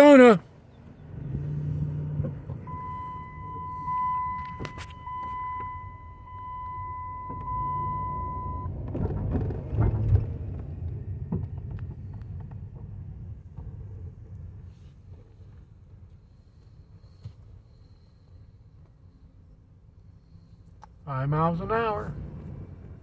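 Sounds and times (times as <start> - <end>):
engine and road rumble: 0.0 - 23.0
high electronic tone: 2.7 - 8.7.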